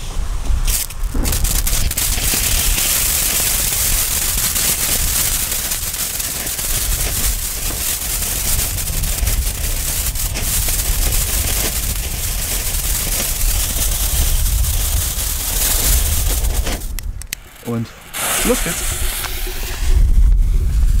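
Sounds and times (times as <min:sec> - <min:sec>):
firework fountain hissing and crackling: 0:00.0 - 0:21.0
low rumble: 0:00.2 - 0:04.1, 0:13.1 - 0:21.0.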